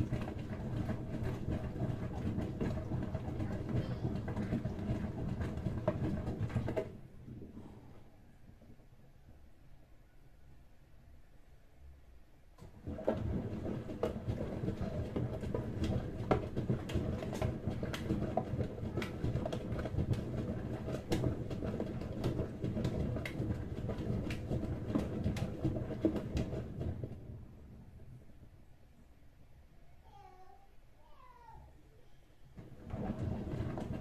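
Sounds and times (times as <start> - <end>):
laundry knocking in drum: 0.0 - 7.1, 12.6 - 27.4, 32.6 - 34.0
washing machine drum rumbling: 0.0 - 7.5, 12.6 - 28.2, 32.6 - 34.0.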